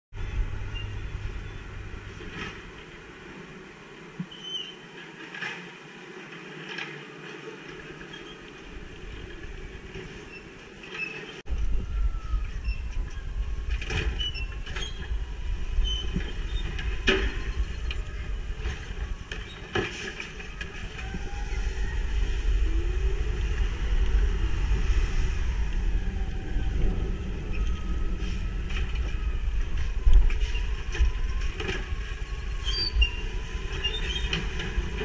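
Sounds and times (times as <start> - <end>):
garbage truck engine rumble: 0.1 - 4.2, 11.4 - 35.0.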